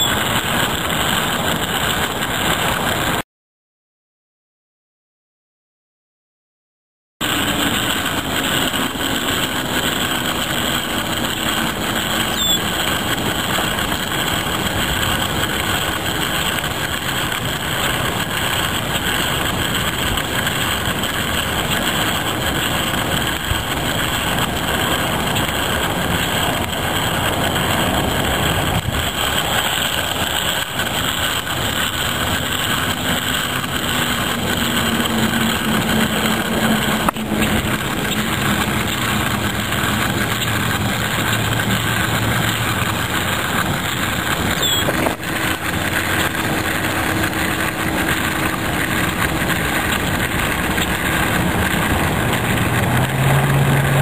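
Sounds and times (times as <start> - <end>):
constant hiss: 7.2 - 54.0
small motor running: 7.2 - 54.0.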